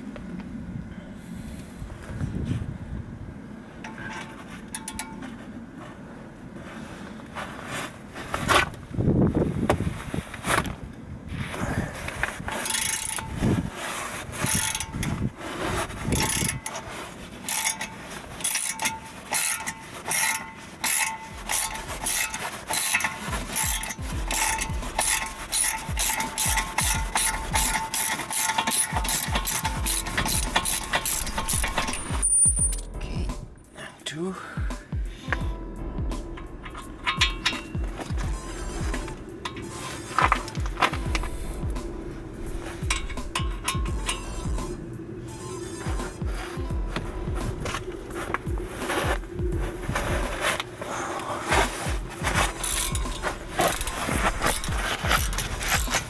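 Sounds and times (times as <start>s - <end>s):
socket ratchet clicking: 12.6s - 13.4s, 14.4s - 15.2s, 17.5s - 33.0s, 36.3s - 44.8s, 52.0s - 56.0s.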